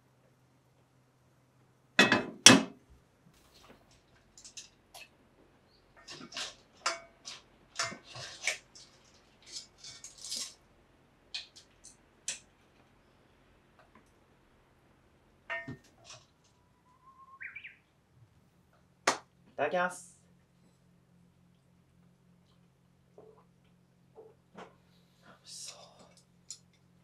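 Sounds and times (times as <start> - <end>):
sharp metal clanks: 15.5 - 16.2.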